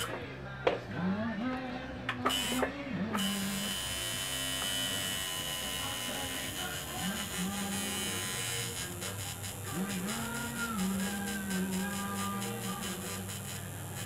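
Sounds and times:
tattoo machine buzzing: 2.3s - 14.0s.

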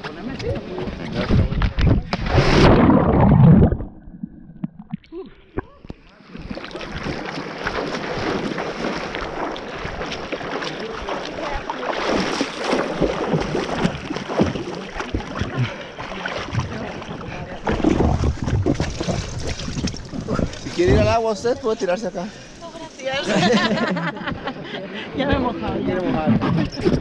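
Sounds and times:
low rumbling: 1.3s - 5.8s
water splashing from swimmer: 6.2s - 21.4s.

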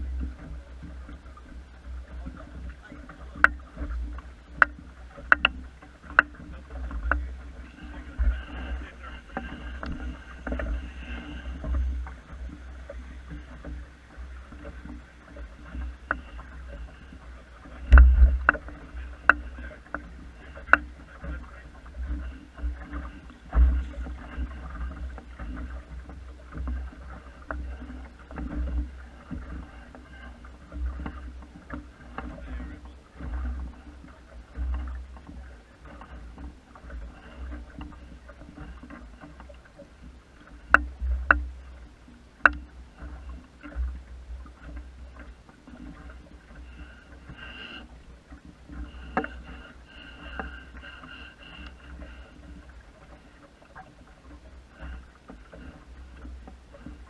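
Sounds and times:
wind rumble on microphone: 0.0s - 36.4s
water lapping along boat hull: 0.0s - 57.0s.

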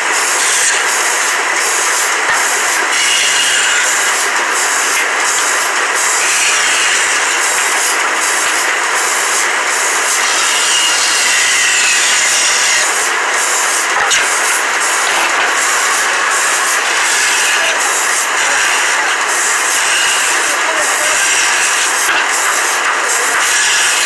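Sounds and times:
band saw cutting wood: 0.0s - 24.0s.

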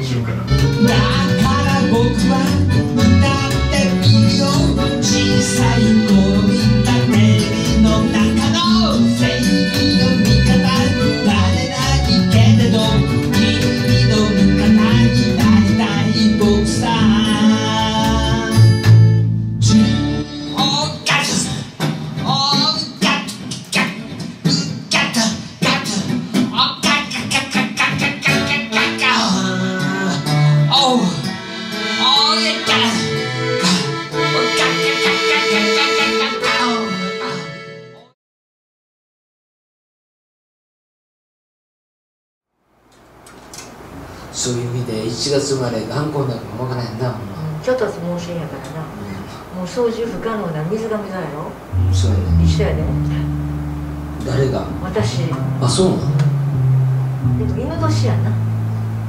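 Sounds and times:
accordion: 0.0s - 21.2s, 26.8s - 38.2s, 51.7s - 59.0s
bass line: 0.0s - 21.2s, 51.7s - 59.0s
man singing: 0.5s - 18.9s, 19.6s - 37.6s
acoustic guitar strumming: 0.5s - 37.9s, 51.7s - 59.0s
strummed acoustic guitar: 51.7s - 57.5s.

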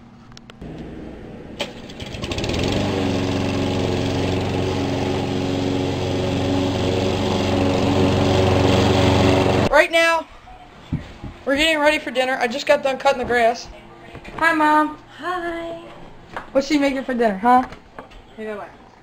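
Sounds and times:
lawn mower engine running: 0.6s - 9.7s.

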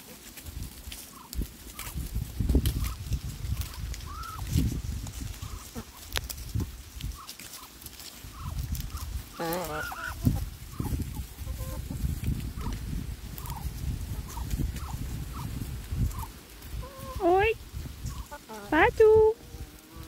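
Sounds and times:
poultry calling: 0.9s - 2.0s, 2.7s - 4.5s, 5.2s - 6.1s, 7.0s - 17.4s, 18.0s - 18.8s, 19.4s - 20.0s.

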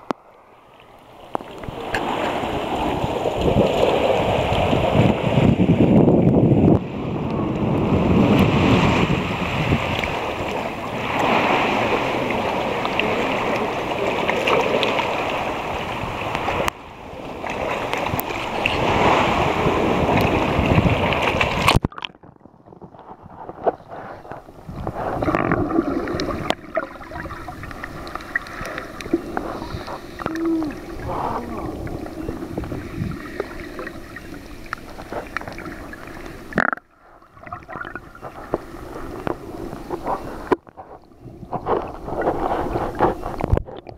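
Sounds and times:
water sloshing and splashing: 0.0s - 6.0s, 6.7s - 43.9s
muffled underwater sound: 10.2s - 43.9s.

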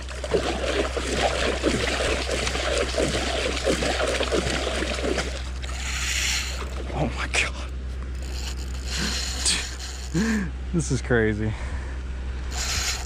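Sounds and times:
water gurgling and sloshing: 0.0s - 10.2s.

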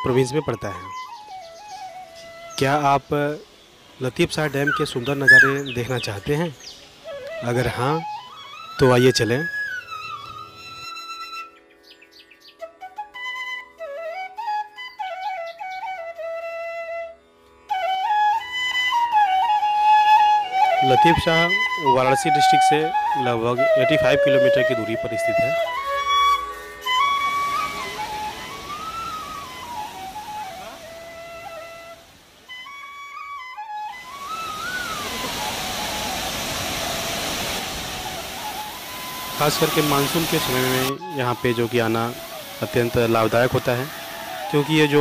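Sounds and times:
flute melody: 0.0s - 45.0s
water pouring over spillway: 34.2s - 40.9s.

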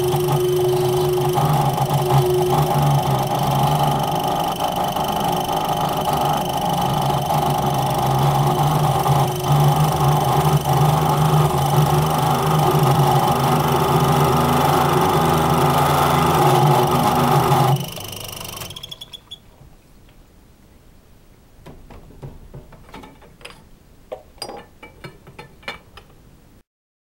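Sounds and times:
circular saw cutting metal: 0.0s - 19.0s
light clicks and knocks: 21.6s - 26.2s.

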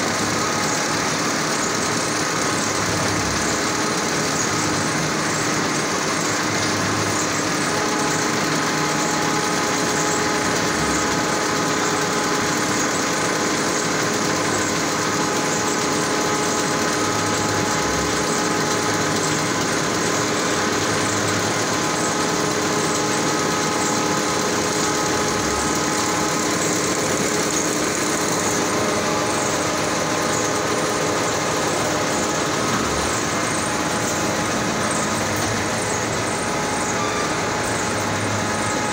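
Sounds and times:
paper line machinery din: 0.0s - 38.9s.

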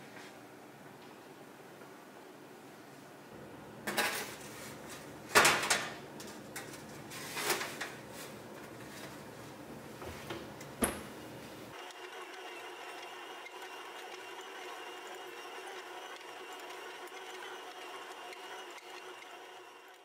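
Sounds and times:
stand mixer motor running: 11.8s - 20.0s.

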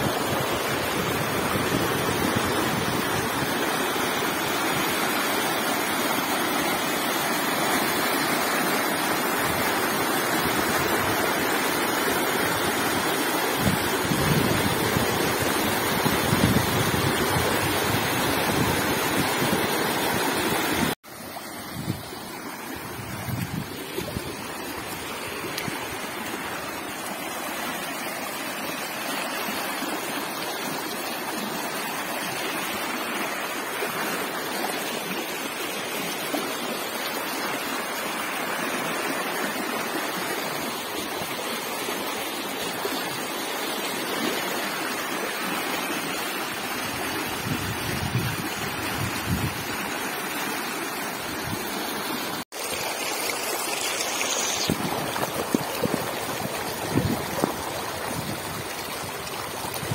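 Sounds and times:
floodwater rushing: 0.0s - 59.9s.

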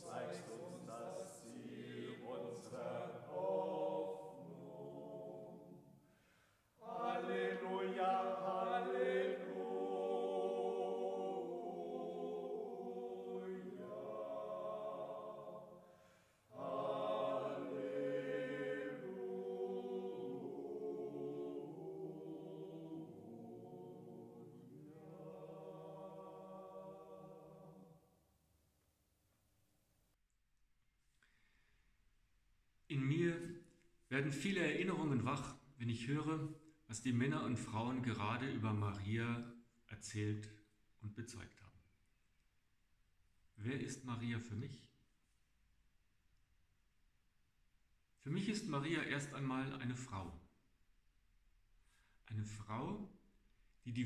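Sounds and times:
choir singing a slow chant: 0.0s - 28.2s.

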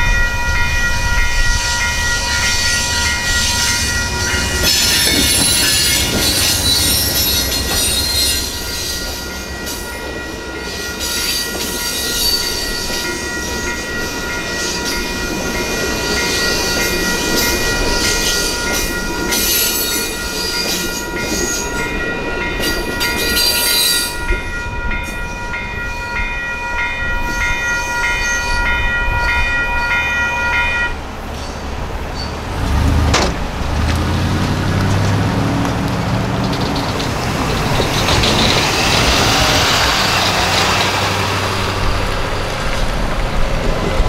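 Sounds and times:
crossing bell dinging: 0.0s - 44.0s
train cars rumbling on rails: 0.0s - 44.0s
vehicle engines pulling away: 32.1s - 43.8s.

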